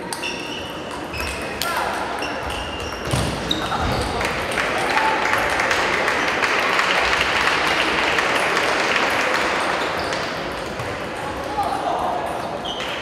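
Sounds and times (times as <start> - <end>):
spectators clapping: 4.1 - 11.0.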